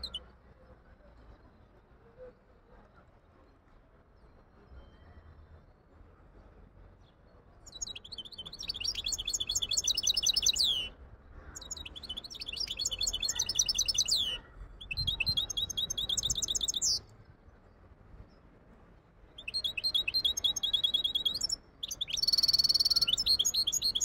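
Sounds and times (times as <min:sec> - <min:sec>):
finch singing fast high trills: 0:07.7 - 0:10.9, 0:11.6 - 0:17.0, 0:19.4 - 0:24.0.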